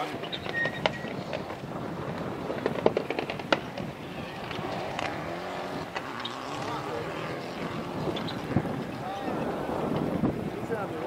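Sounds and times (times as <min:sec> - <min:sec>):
distant rally car on gravel: 0:00.0 - 0:11.0
sharp cracks: 0:00.4 - 0:09.0.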